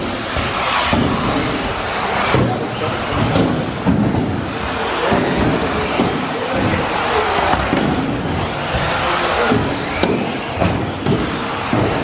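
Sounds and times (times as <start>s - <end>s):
rc car motors whining: 0.0s - 12.0s.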